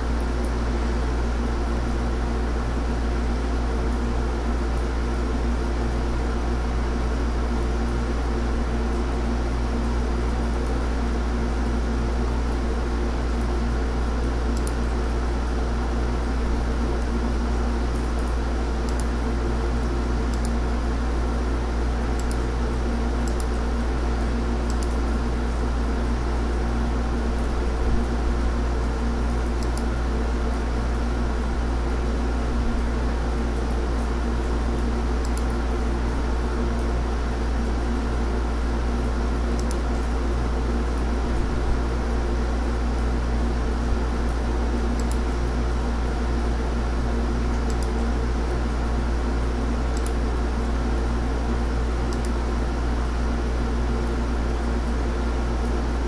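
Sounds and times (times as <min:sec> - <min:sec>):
electrical hum and fan whir: 0:00.0 - 0:56.0
faint clicks: 0:18.9 - 0:19.1, 0:45.0 - 0:45.2.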